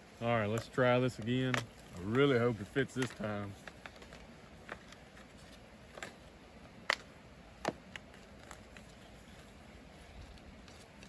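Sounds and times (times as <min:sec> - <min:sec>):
helmet clicks and taps: 0:00.5 - 0:01.8, 0:02.9 - 0:05.0.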